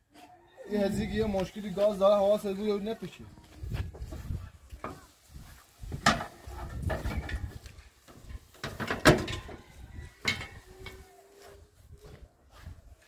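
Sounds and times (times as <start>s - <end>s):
objects knocking and clattering: 6.0s - 7.5s, 8.1s - 9.6s, 10.2s - 10.6s.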